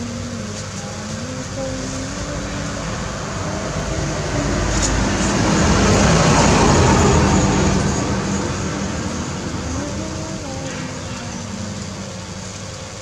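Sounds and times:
street traffic noise: 0.0s - 13.0s
vehicle passing close by: 1.8s - 12.3s.

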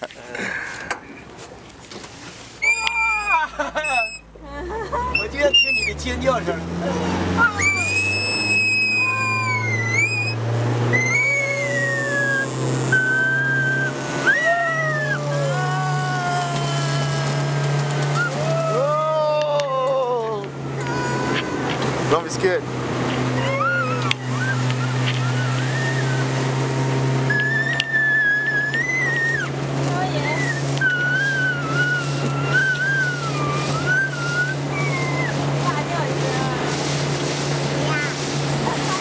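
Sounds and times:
speedboat engine drone: 0.0s - 39.0s
water rushing: 0.0s - 39.0s
wind: 0.0s - 39.0s
girl squealing with delight: 2.6s - 4.2s, 7.4s - 17.2s, 23.4s - 26.3s, 27.3s - 29.5s, 30.3s - 35.4s
high wavering tone: 2.6s - 4.4s, 7.3s - 16.0s, 23.3s - 35.6s.

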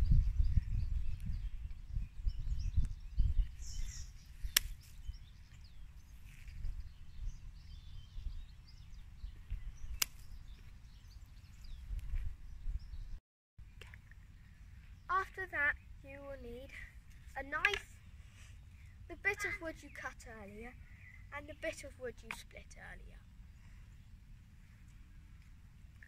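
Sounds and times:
wind rumble on microphone: 0.0s - 13.2s
faint birdsong: 0.0s - 26.0s
secateurs snipping stick: 4.4s - 4.9s, 9.9s - 10.3s.

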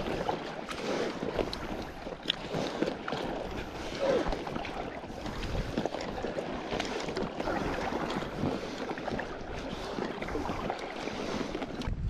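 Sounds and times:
paddle dipping and splashing: 0.0s - 12.0s
water lapping at hull: 0.0s - 12.0s
wind buffeting microphone: 7.4s - 12.0s.

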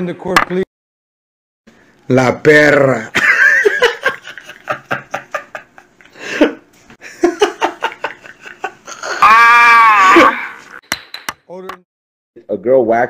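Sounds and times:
person laughing: 3.2s - 10.7s
loud drawn-out vocal cry: 8.9s - 10.8s.

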